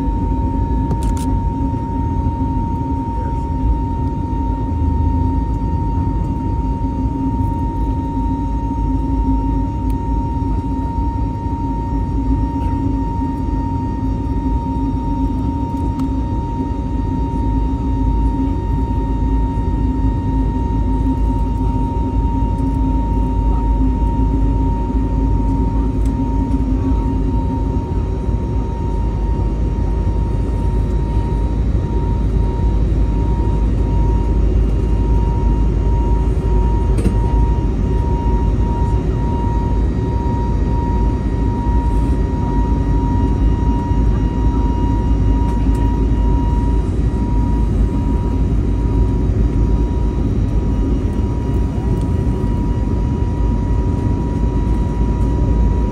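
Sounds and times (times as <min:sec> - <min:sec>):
airliner cabin engine rumble: 0:00.0 - 0:55.9
thin steady whine: 0:00.0 - 0:55.9.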